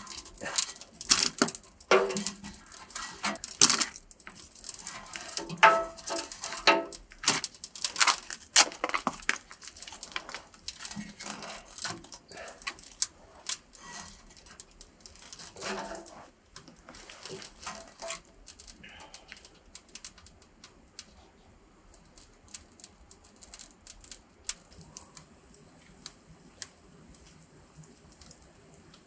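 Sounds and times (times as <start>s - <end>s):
logs clattering into stove: 0.0s - 18.8s
wood fire crackling and popping: 0.0s - 29.0s.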